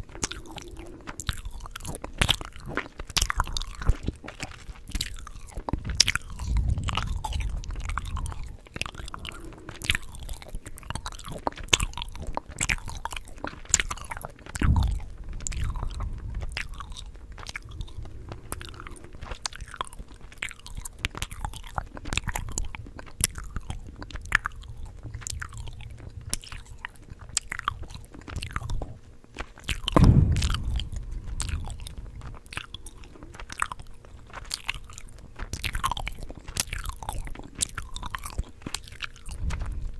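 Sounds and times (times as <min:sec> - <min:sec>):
gum chewing mouth clicks: 0:00.0 - 0:39.9
deep thumps: 0:05.8 - 0:10.4, 0:14.6 - 0:18.9, 0:29.8 - 0:34.0.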